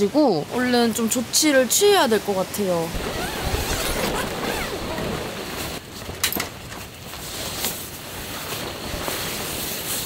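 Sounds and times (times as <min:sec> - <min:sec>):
tent fabric flapping: 0:02.9 - 0:10.0.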